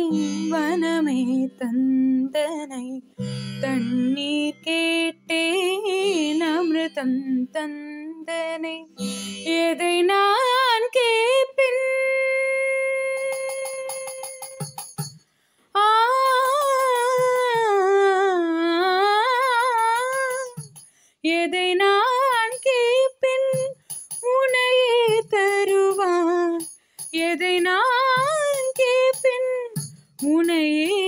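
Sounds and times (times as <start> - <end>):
woman singing wordless phrase: 0.0 - 14.2, 27.2 - 31.0.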